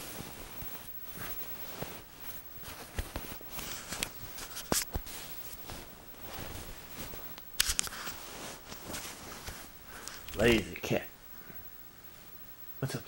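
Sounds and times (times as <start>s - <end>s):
sharp fabric swishes: 0.0s - 9.8s
bedding rustling: 0.0s - 12.7s.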